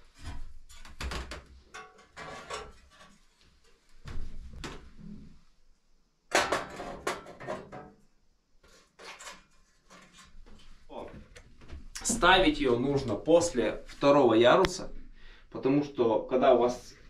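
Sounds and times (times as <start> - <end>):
metal stove parts clattering: 0.2 - 3.2, 6.3 - 7.9.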